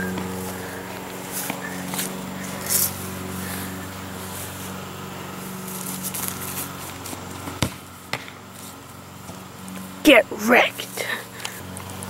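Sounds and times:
steady low hum: 0.0 - 12.0
ball kick thud: 7.5 - 8.4.

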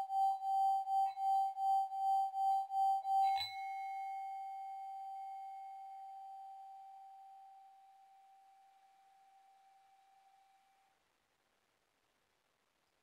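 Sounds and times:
singing bowl ringing: 0.0 - 10.9
faint higher overtone: 0.0 - 11.0.

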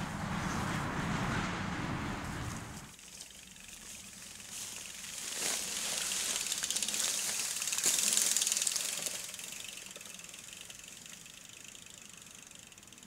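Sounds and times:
bicycle freewheel clicking: 2.9 - 13.0.

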